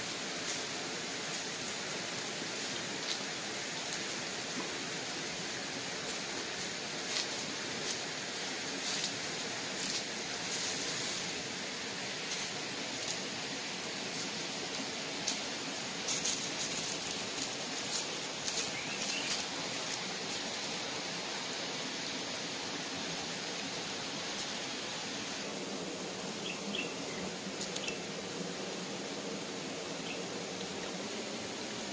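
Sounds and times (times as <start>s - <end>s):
stream rushing: 0.0s - 31.9s
clicks and rustles on rocks and leaves: 0.4s - 21.2s, 27.4s - 28.1s.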